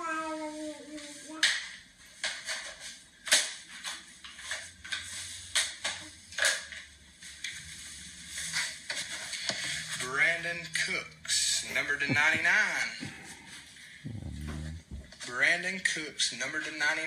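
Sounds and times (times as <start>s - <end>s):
faint low hum: 7.2s - 15.6s.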